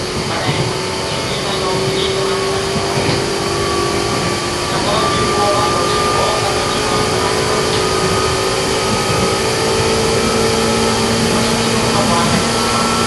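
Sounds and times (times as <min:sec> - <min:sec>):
train motors whining: 0:00.0 - 0:13.0
wheels rumbling on rails: 0:00.0 - 0:13.0.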